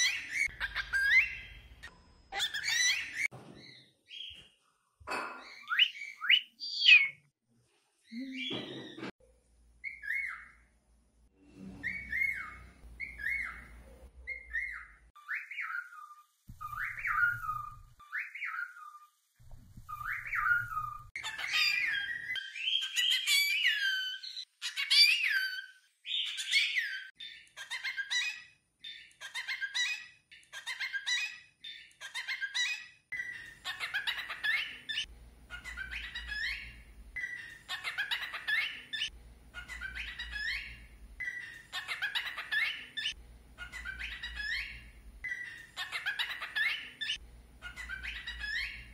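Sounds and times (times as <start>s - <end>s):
cockatiels whistling: 2.4s - 3.3s, 11.8s - 19.0s, 19.9s - 27.1s, 32.6s - 48.9s.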